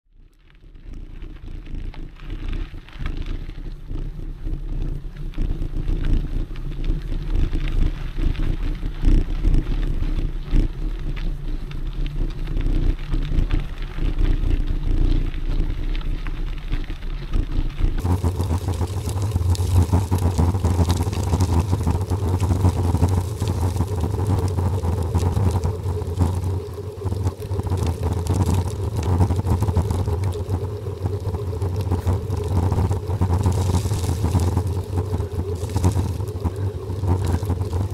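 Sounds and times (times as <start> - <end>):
steady hum with tones: 0.1 - 37.9
wind on microphone: 0.7 - 37.9
tyres rolling over gravel: 1.0 - 37.9.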